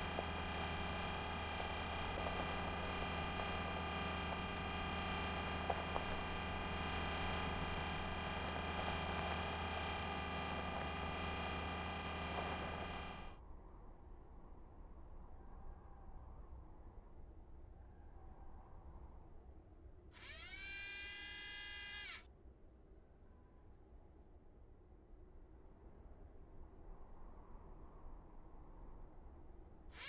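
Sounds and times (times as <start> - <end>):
faint clicks: 0.0 - 13.3
mechanical motor hum: 0.0 - 13.4, 20.2 - 22.2.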